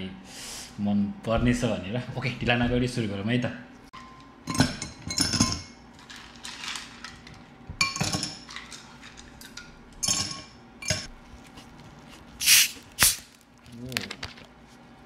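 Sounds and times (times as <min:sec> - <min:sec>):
short hiss: 0:12.4 - 0:13.2.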